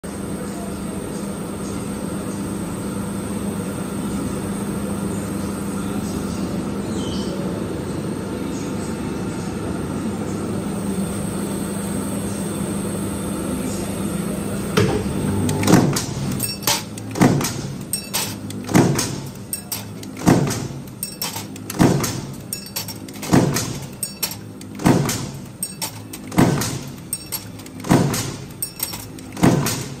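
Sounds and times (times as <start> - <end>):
stamping press humming: 14.6 - 30.0
stamping press strikes: 14.8 - 30.0.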